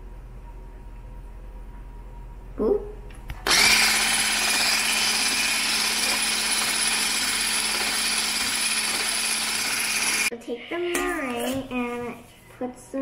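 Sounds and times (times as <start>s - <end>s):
electric hand mixer whipping: 3.5s - 10.3s.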